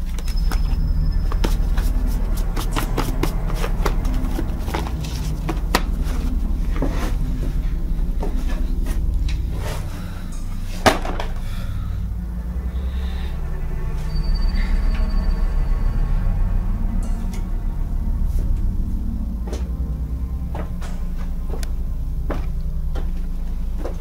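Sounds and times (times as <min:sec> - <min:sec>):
low steady drone: 0:00.0 - 0:24.0.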